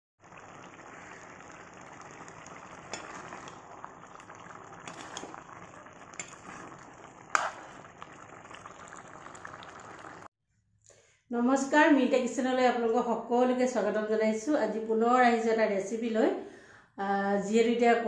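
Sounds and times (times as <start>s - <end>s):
curry bubbling and sizzling: 0.2s - 10.3s.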